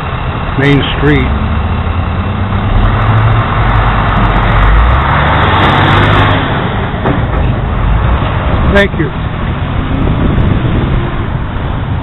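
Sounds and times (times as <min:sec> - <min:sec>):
vehicle engine rumble: 0:00.0 - 0:12.0.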